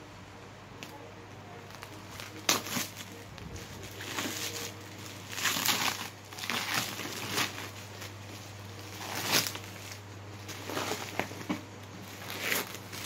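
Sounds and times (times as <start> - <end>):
plastic wrapping crinkling: 0.8 - 13.0.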